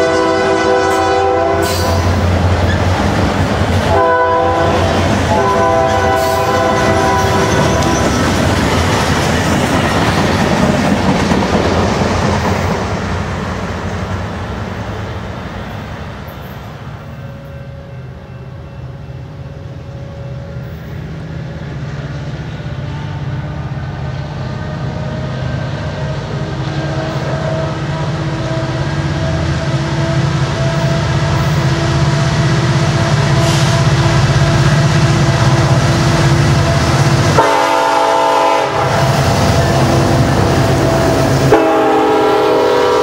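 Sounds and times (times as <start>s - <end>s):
locomotive horn: 0.0s - 2.8s, 3.8s - 8.4s, 26.1s - 32.2s, 32.8s - 43.0s
diesel locomotive engine drone: 0.0s - 43.0s.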